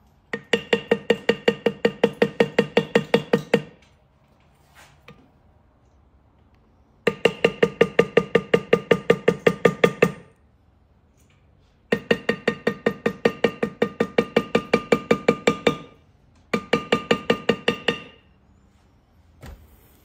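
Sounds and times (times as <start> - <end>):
mallet striking leather stamp: 0.3 - 3.7, 7.1 - 10.2, 11.9 - 15.9, 16.5 - 18.1.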